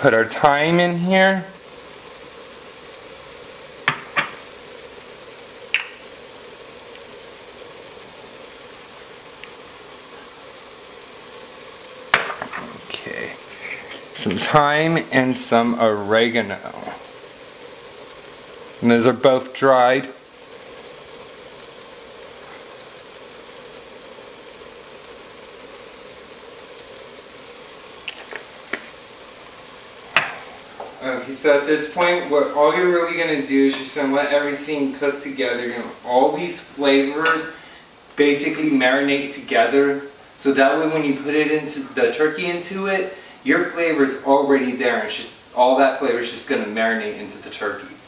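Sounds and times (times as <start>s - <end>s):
food sizzling in a pot: 0.0s - 48.0s.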